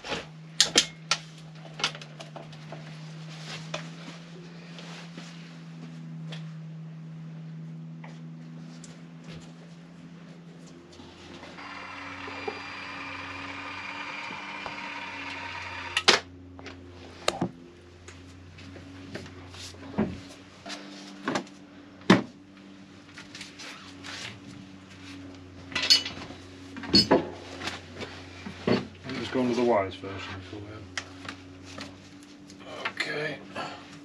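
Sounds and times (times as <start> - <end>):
caulking gun motor whirring: 11.6 - 16.2.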